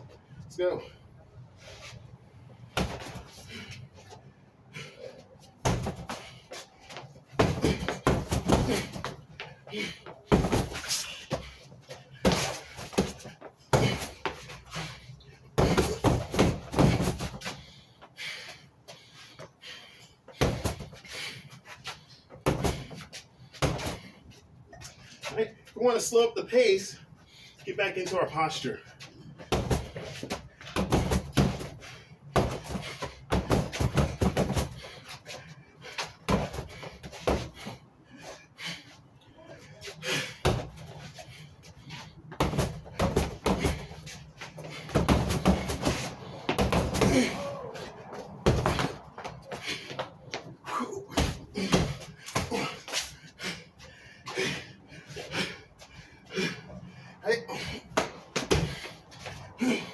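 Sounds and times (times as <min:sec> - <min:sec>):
punches on punching bag: 0:05.6 - 0:06.2, 0:07.4 - 0:09.0, 0:10.3 - 0:10.8, 0:12.2 - 0:14.2, 0:15.6 - 0:17.4, 0:20.4 - 0:20.9, 0:22.4 - 0:23.0, 0:29.5 - 0:30.0, 0:30.8 - 0:34.8, 0:42.4 - 0:43.9, 0:44.8 - 0:47.5, 0:48.4 - 0:49.0, 0:51.1 - 0:52.8, 0:57.9 - 0:58.8.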